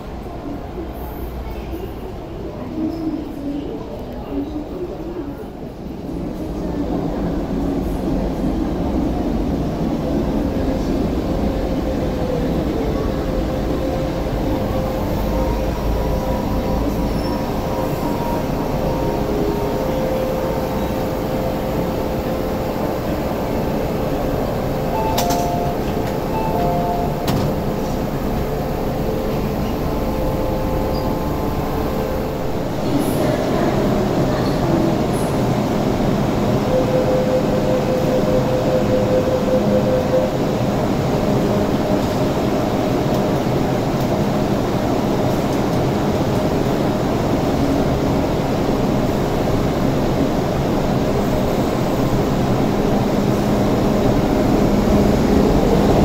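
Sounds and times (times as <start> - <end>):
train rumbling and whining: 0.0 - 56.0
train door clicks: 24.9 - 28.5.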